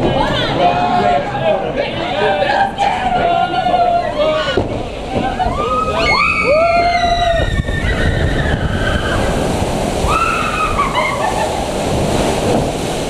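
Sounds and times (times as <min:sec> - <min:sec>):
water rushing and splashing: 0:00.0 - 0:13.0.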